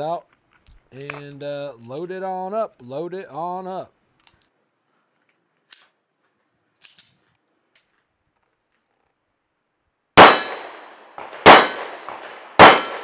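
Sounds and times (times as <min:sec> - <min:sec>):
faint pistol handling clicks: 0:04.1 - 0:04.6, 0:05.2 - 0:06.0, 0:06.8 - 0:08.8
clang of steel targets: 0:10.2 - 0:13.0
pistol shots: 0:10.2 - 0:13.0.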